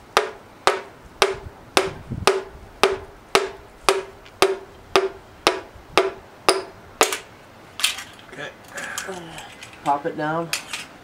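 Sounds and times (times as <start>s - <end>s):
hammer handle tapping piston: 0.1s - 7.3s.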